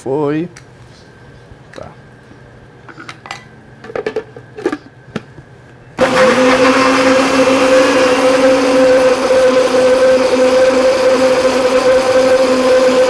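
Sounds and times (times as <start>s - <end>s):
blender motor running: 6.0s - 13.0s.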